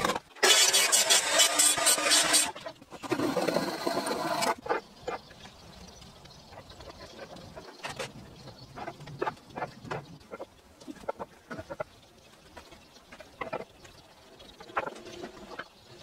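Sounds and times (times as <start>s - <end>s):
circular saw cutting timber: 0.4s - 4.6s.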